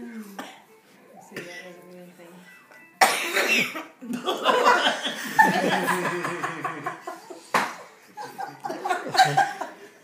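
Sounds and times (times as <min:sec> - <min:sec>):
adults laughing: 0:04.1 - 0:10.0.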